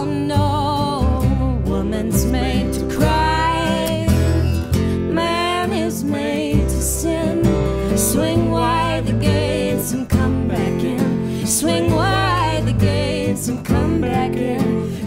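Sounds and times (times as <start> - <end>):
plucked upright bass: 0.0 - 15.0
strummed acoustic guitar: 0.0 - 15.0.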